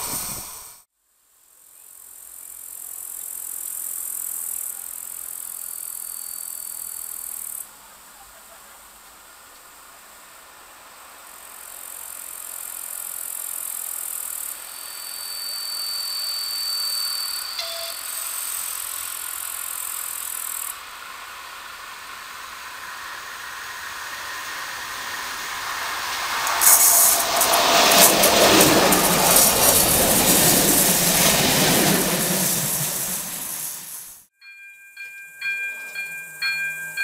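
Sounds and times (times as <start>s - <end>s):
diesel locomotive passing: 9.7s - 34.3s
train wheels clattering over rail joints: 26.0s - 34.0s.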